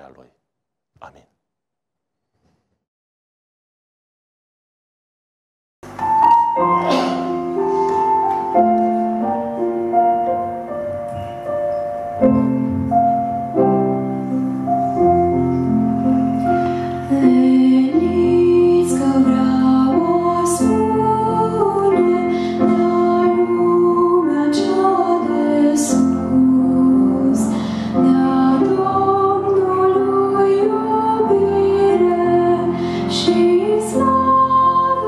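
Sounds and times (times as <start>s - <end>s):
piano playing: 5.8s - 35.0s
woman singing into microphone: 17.0s - 35.0s.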